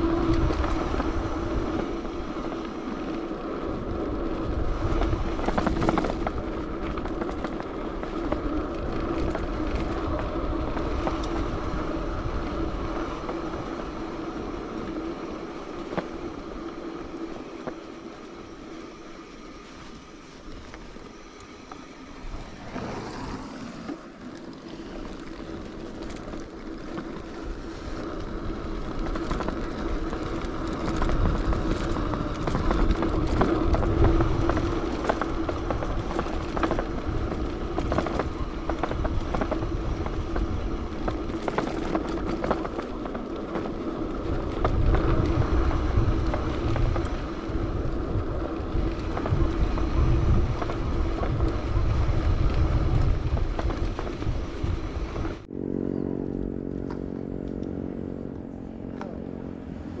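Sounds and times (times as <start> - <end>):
wind buffeting microphone: 0.0 - 23.8, 24.7 - 60.0
road rumble: 0.0 - 60.0
low drone of several tones: 54.4 - 60.0.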